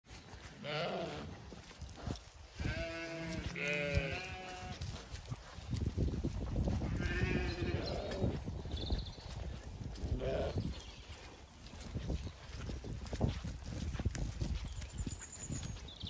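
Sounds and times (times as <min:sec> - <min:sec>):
sheep bleating: 0:00.6 - 0:01.4, 0:02.6 - 0:04.8, 0:07.0 - 0:08.3, 0:10.2 - 0:10.6.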